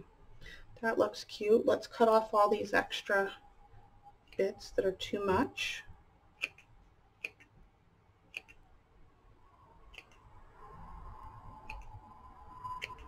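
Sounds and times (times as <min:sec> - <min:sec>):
scissors snipping: 0:06.4 - 0:07.4.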